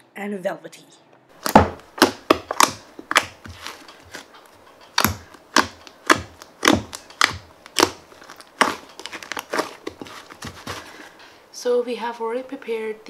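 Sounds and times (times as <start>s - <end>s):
slime popping and clicking: 1.4s - 3.5s, 4.9s - 10.0s.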